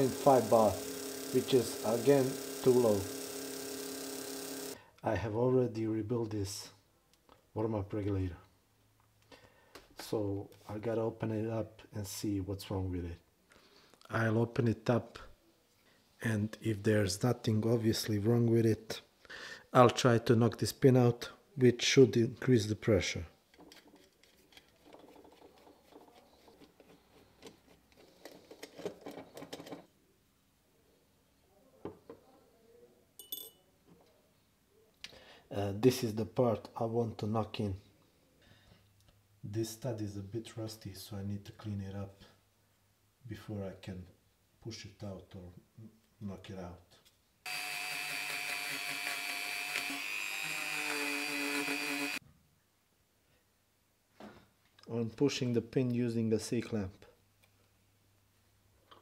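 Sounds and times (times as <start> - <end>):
rotary tool high-pitched whine: 0.0 - 4.8, 47.5 - 52.2
small metal part ringing: 33.2 - 33.6.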